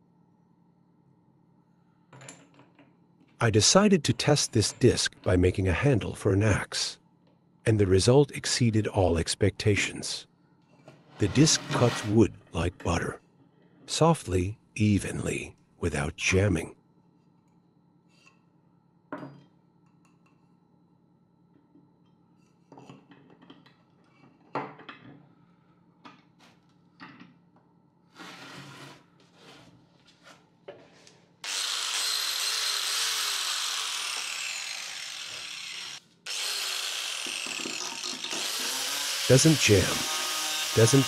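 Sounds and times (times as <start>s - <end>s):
angle grinder high whine: 31.4s - 41.0s.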